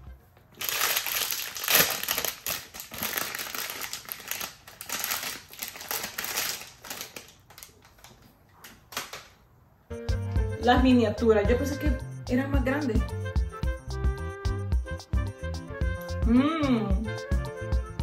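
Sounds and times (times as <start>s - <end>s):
plastic wrapper crinkling: 0.5s - 9.4s.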